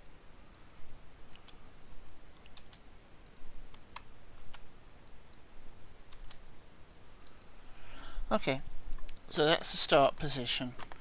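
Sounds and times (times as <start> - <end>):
faint low hum: 0.0 - 11.0
mouse and keyboard clicks: 1.3 - 5.4, 6.1 - 6.4, 7.2 - 7.7.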